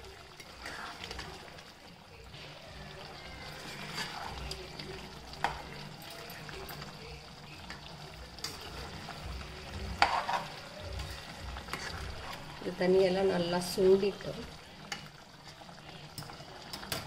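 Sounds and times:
spatula scraping pan: 0:03.4 - 0:04.5, 0:10.0 - 0:12.5
spatula knocking pan: 0:10.0 - 0:10.4.

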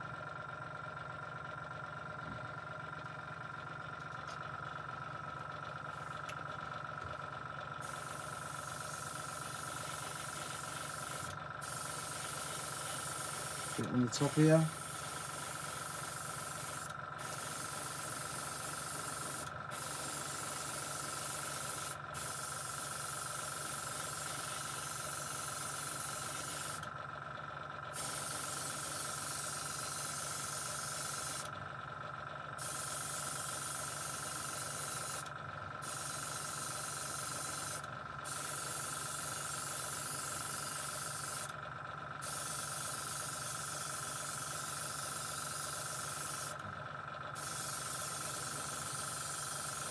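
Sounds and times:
airbrush spraying hiss: 0:07.8 - 0:26.8, 0:28.0 - 0:31.5, 0:32.6 - 0:35.2, 0:35.8 - 0:41.5, 0:42.2 - 0:46.6, 0:47.4 - 0:49.9.

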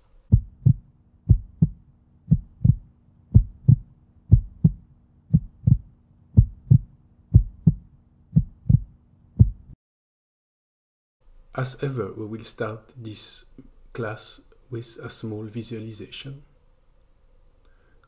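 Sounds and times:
steady low hum: 0:00.0 - 0:09.8
heartbeat thumps: 0:00.3 - 0:09.8.

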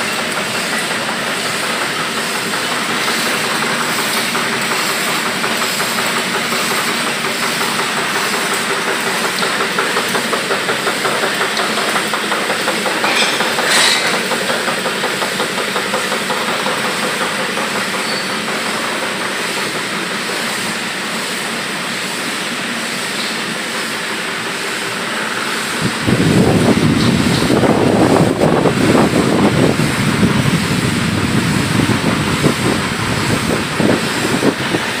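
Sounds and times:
machines clattering: 0:00.0 - 0:35.0
deep machine pounding: 0:25.3 - 0:35.0.

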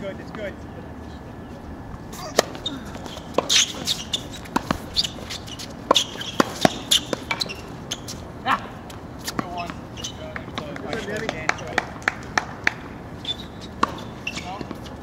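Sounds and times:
racket hitting tennis ball: 0:02.2 - 0:07.9, 0:13.6 - 0:14.9
ball bouncing on hard court: 0:02.4 - 0:08.1, 0:13.7 - 0:14.8.

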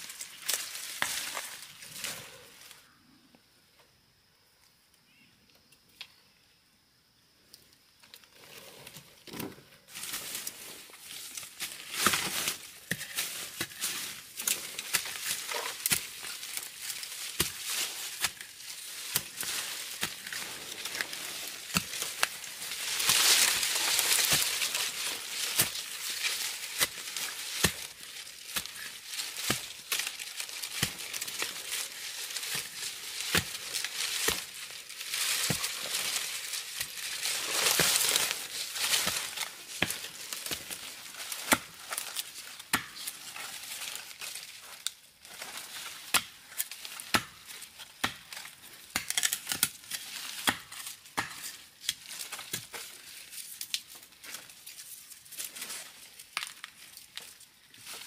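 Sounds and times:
leaf litter rustling: 0:00.0 - 0:02.8, 0:09.9 - 0:58.0
metal tool digging into soil: 0:10.0 - 0:44.2.

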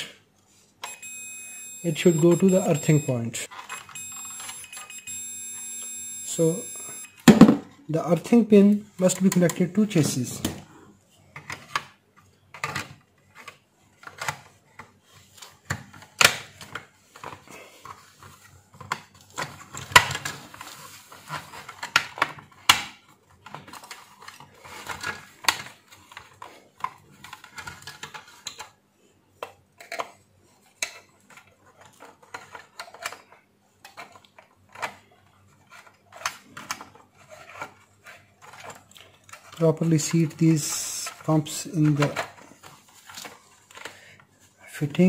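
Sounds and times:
plastic clicks and rattling: 0:11.3 - 0:28.8, 0:29.4 - 0:39.6.

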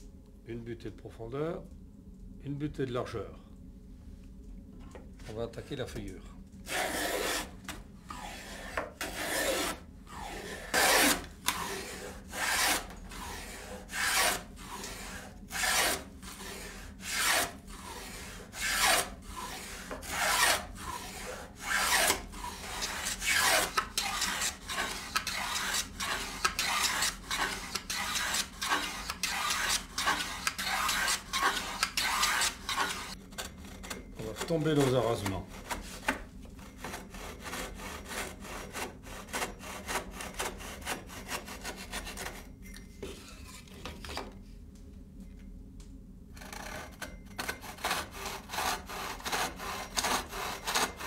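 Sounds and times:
hand plane shearing wood: 0:06.7 - 0:07.5, 0:08.1 - 0:33.2, 0:34.2 - 0:36.2, 0:36.8 - 0:42.4, 0:47.4 - 0:51.0.

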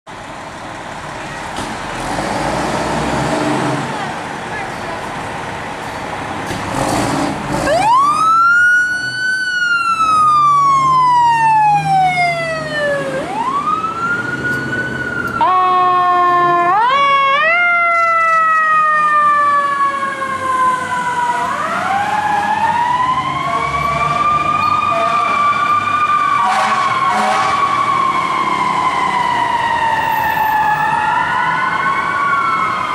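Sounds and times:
fire engine siren wailing: 0:07.5 - 0:32.9.

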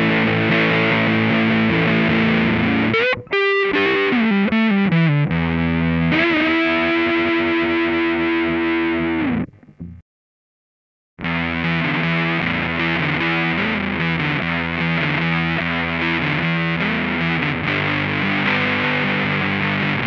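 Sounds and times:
fuzz electric guitar: 0:00.0 - 0:10.0, 0:11.2 - 0:20.0.

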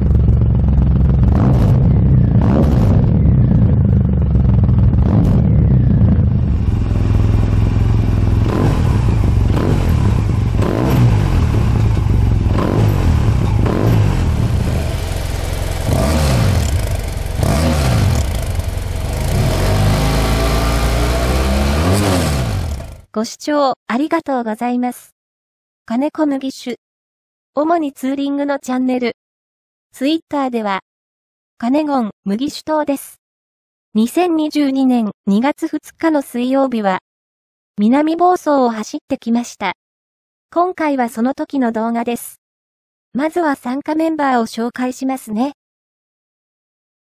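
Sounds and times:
motorcycle exhausts revving: 0:00.0 - 0:23.1.

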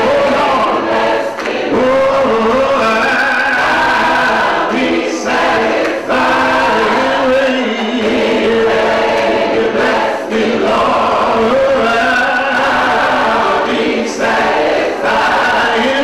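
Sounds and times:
choir singing held chords: 0:00.0 - 0:16.0.

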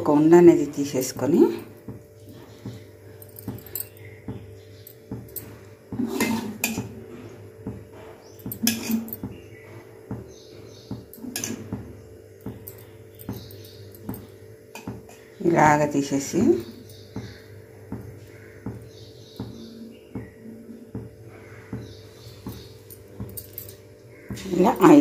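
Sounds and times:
clinks against steel bowl: 0:08.4 - 0:09.3, 0:11.1 - 0:11.8.

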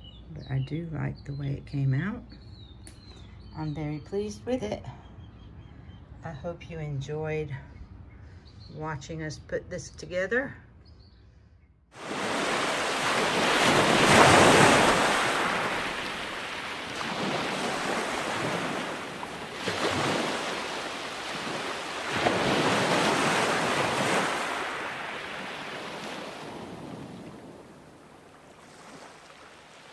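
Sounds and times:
ocean surf washing in: 0:12.0 - 0:29.9.

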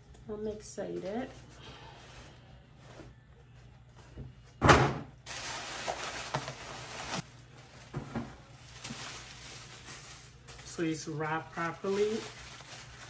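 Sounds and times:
tissue paper rustling and crinkling: 0:05.3 - 0:13.0.

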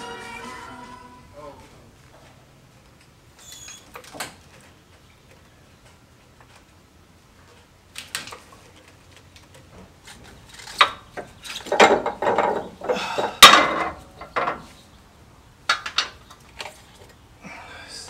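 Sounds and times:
metal rattling and clanking: 0:10.1 - 0:14.7.

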